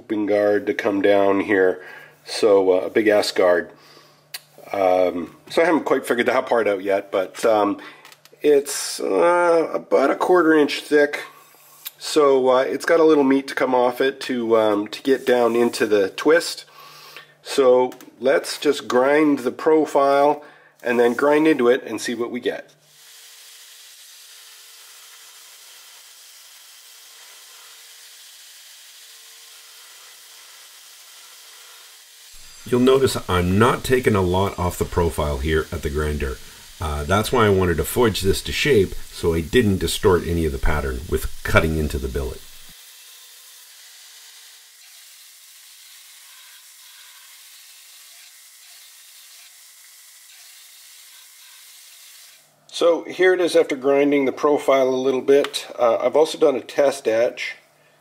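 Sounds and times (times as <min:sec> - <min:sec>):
belt grinder running: 0:22.9 - 0:49.6.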